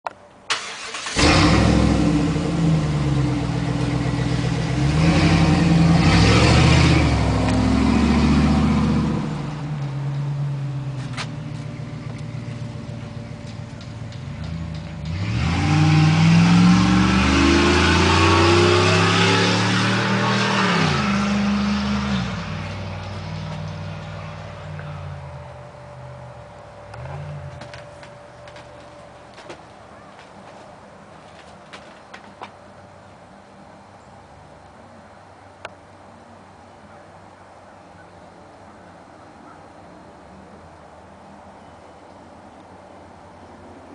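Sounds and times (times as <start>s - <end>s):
pickup engine revving: 0.5s - 28.7s.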